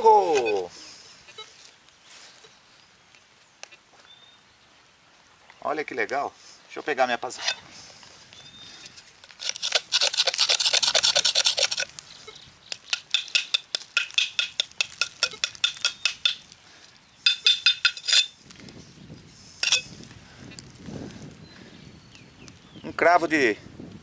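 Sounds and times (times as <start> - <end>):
metal tool scraping metal spike: 9.3 - 11.9, 12.8 - 16.4, 17.3 - 18.4, 19.6 - 19.9.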